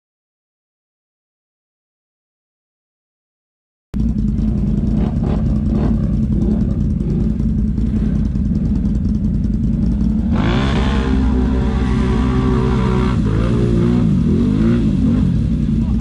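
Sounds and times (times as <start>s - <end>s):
atv engine running: 4.0s - 16.0s.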